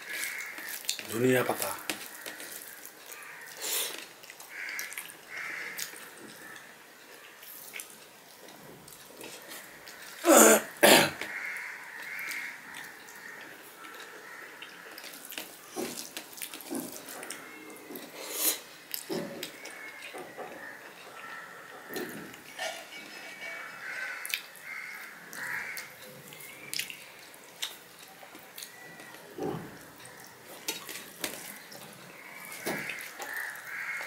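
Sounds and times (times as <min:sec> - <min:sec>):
person clearing throat: 0:10.2 - 0:11.2.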